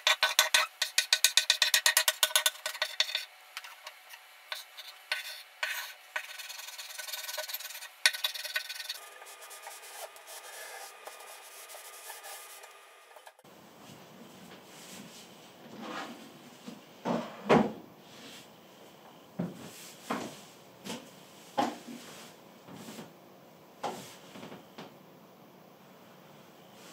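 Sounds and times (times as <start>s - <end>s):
chalk scratching on a chalkboard: 0.0s - 13.4s.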